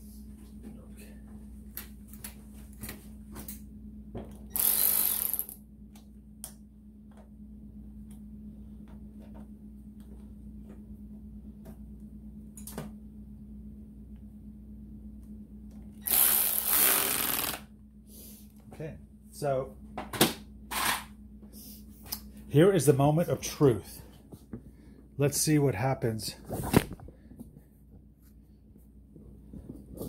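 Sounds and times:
steady low hum: 0.0 - 30.0
loud burst of noise: 16.0 - 17.7.

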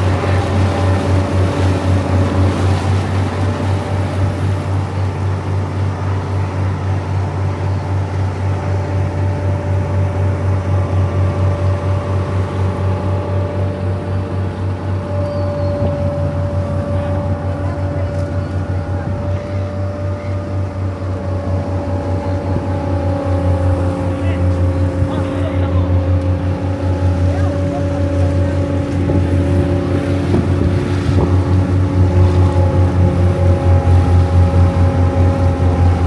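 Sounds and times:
boat engine low pulsing drone: 0.0 - 36.0.

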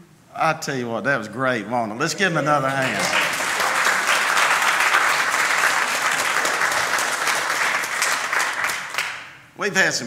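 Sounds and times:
congregation clapping: 2.5 - 9.4.

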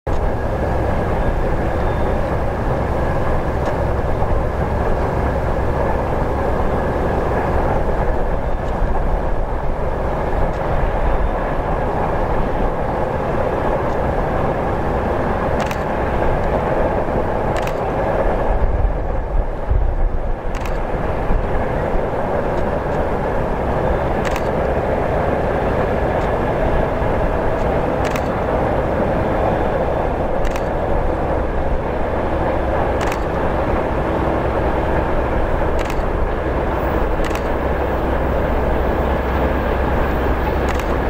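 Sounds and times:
distant diesel engine drone: 0.1 - 41.0
low rumble: 0.1 - 41.0
faint clicks: 20.5 - 20.8, 27.6 - 28.4, 33.0 - 33.4, 35.7 - 36.1, 37.2 - 37.6, 40.6 - 41.0.

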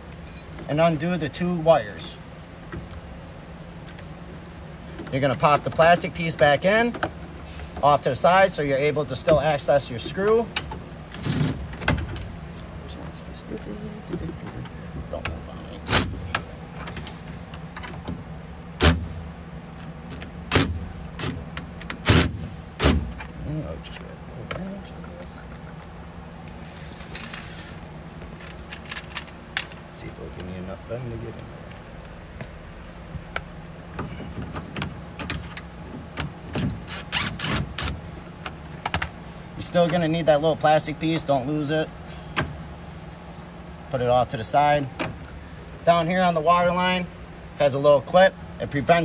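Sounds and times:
scraping rustles: 26.6 - 28.9.

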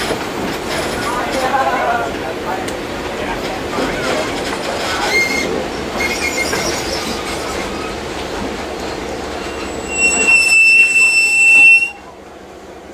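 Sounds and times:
train wheels rumbling on rails: 0.0 - 12.9
high-pitched wheel squeal: 5.0 - 7.4, 9.4 - 12.1.

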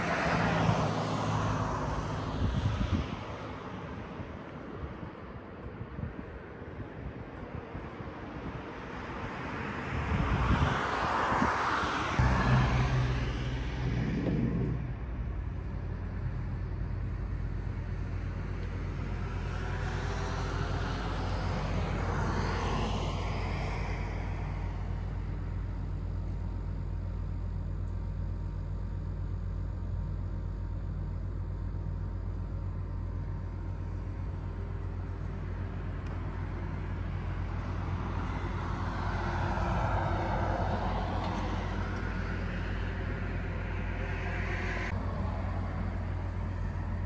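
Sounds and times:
vehicles passing: 0.0 - 47.0
steady low hum: 12.2 - 47.0.

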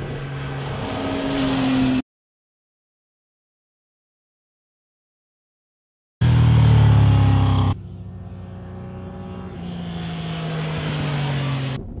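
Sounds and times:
motorcycle engine passing at speed: 0.0 - 2.0, 6.2 - 12.0.

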